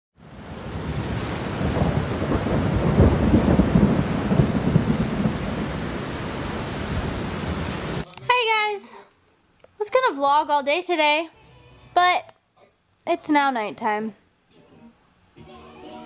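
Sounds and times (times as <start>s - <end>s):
rain hiss: 0.2s - 8.0s
rolling thunder: 0.4s - 8.0s.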